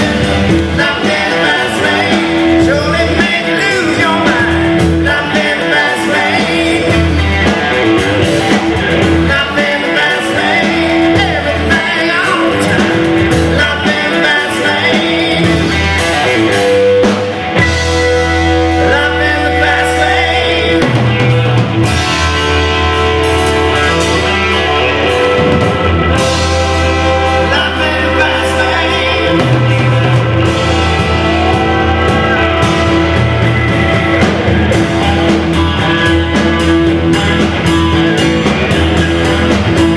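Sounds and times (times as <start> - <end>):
man singing: 0.0 - 16.8, 17.7 - 22.2, 23.7 - 39.9
drums: 0.0 - 39.9
electric bass: 0.0 - 39.9
electric guitar: 0.0 - 39.9
keyboards: 0.0 - 39.9.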